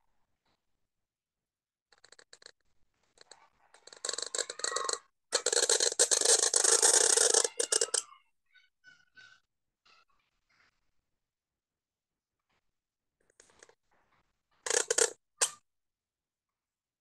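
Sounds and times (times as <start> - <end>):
pen scratching on paper: 3.2 - 8.0.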